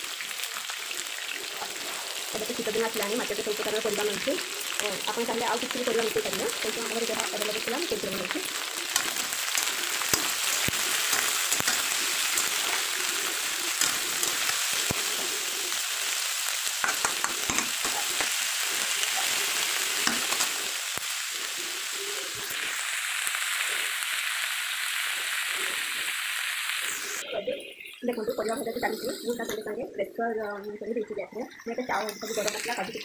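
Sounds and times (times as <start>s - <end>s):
vegetables sizzling in hot oil: 0.0s - 33.0s
spatula scraping metal pan: 8.8s - 14.9s.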